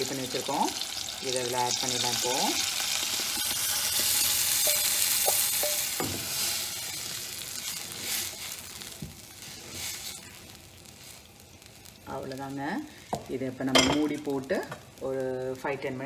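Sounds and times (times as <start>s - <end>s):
hot oil sizzling: 0.0s - 16.0s
stirring in a pot: 1.8s - 11.7s.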